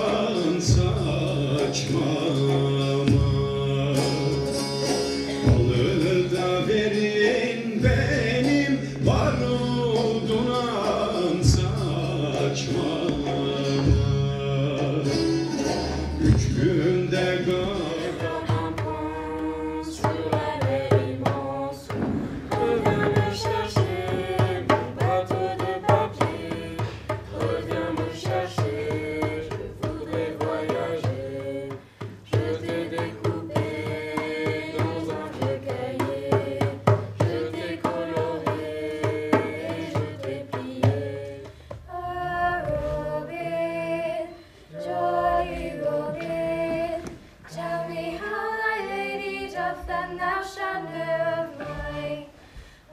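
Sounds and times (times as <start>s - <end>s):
djembe beat: 0.0s - 7.0s, 7.8s - 43.2s
group of voices singing: 0.0s - 52.9s.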